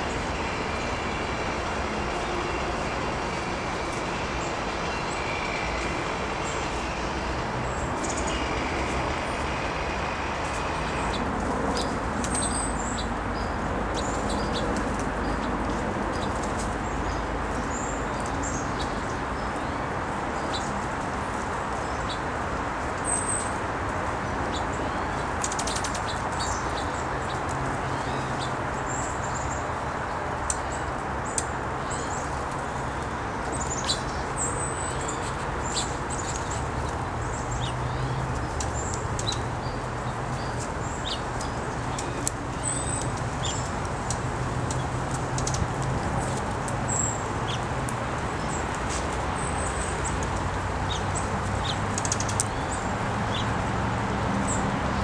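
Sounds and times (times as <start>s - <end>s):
rushing outdoor background: 0.0s - 55.0s
small birds chirping: 30.5s - 53.6s.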